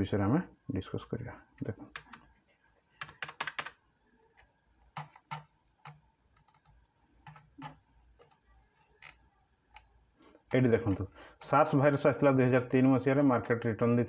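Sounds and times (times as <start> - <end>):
keyboard keys clicking: 3.0 - 3.8, 6.4 - 6.7.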